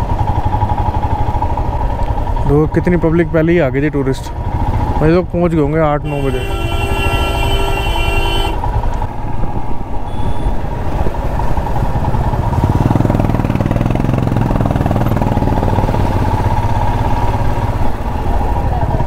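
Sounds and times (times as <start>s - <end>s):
motorcycle engine running: 0.0s - 19.0s
vehicle horn: 6.0s - 8.8s, 10.1s - 10.6s.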